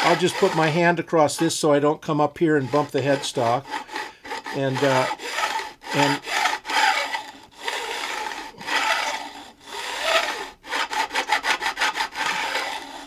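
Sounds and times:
hand file filing metal frets: 0:00.0 - 0:13.0.

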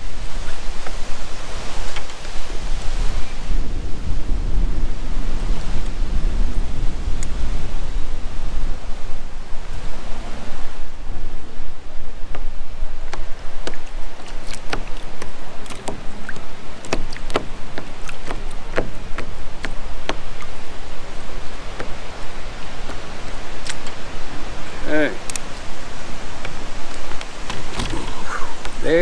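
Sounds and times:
low wind rumble on microphone: 0:00.0 - 0:29.0
clicks and taps in plastic kayak: 0:12.2 - 0:20.6, 0:21.7 - 0:22.0.

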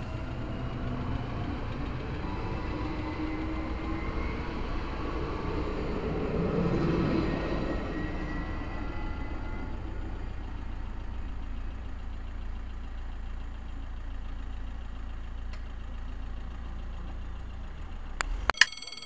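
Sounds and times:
train running noise: 0:00.0 - 0:10.5.

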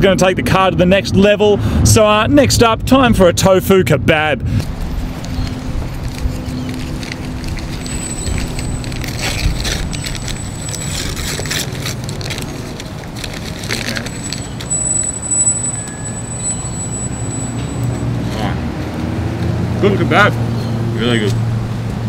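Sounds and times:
paper and foil wrappers crinkling: 0:05.2 - 0:14.7.

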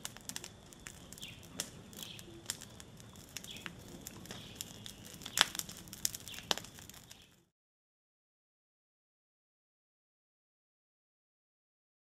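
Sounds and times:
fire crackling and popping: 0:00.0 - 0:07.5
bird chirps: 0:00.8 - 0:02.7, 0:03.4 - 0:05.6.

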